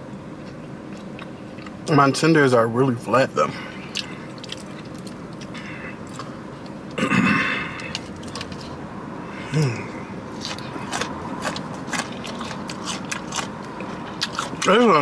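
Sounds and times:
chewing mouth clicks and smacks: 0:03.9 - 0:06.8, 0:07.8 - 0:08.7, 0:10.4 - 0:14.7.

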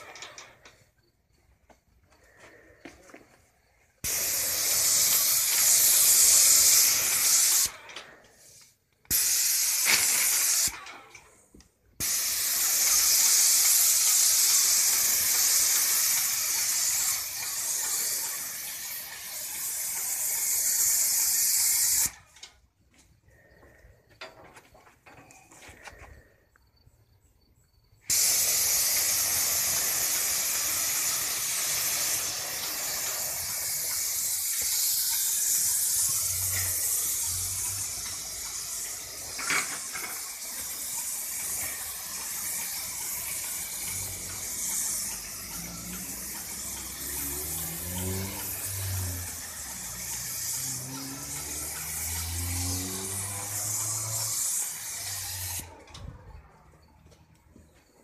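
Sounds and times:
paint sprayer hissing: 0:00.0 - 0:00.9, 0:02.2 - 0:10.8, 0:11.8 - 0:22.6, 0:28.1 - 0:55.9.

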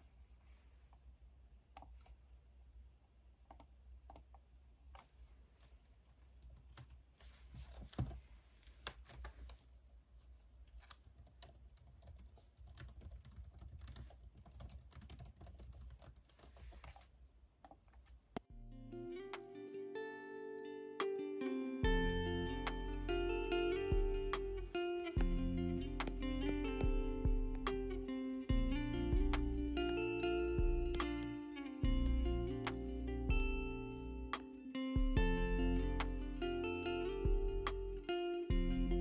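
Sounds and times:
faint keyboard typing: 0:03.5 - 0:08.2, 0:08.8 - 0:18.4.

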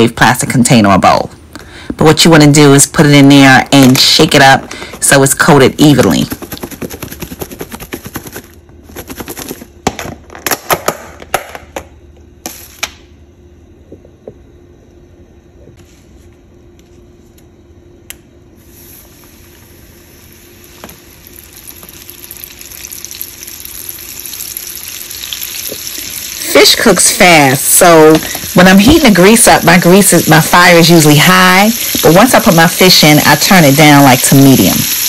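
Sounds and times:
fish sizzling in hot oil: 0:18.6 - 0:35.0.

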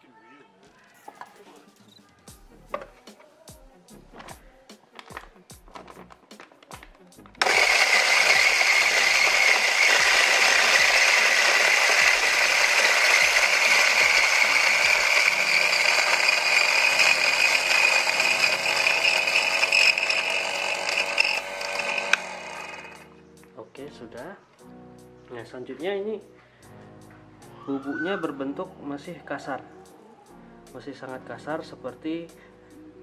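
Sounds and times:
coffee grinder grinding beans: 0:06.7 - 0:23.1.

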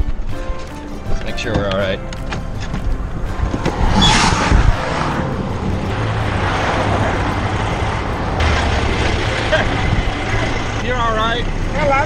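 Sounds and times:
traffic passing: 0:02.1 - 0:12.0
truck engine idling: 0:04.8 - 0:12.0.

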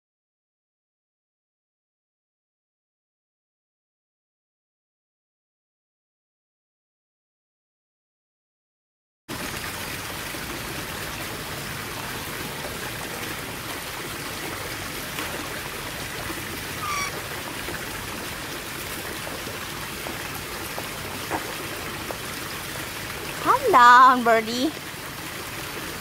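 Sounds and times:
trickling running water: 0:09.3 - 0:26.0
bird chirp: 0:16.8 - 0:17.2.

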